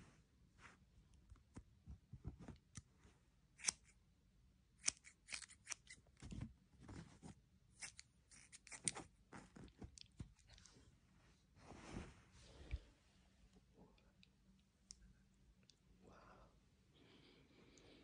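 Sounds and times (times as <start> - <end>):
scissors snipping hair: 3.6 - 3.9, 4.8 - 6.0, 7.8 - 9.0
rustling of hair and bedding: 8.4 - 13.6.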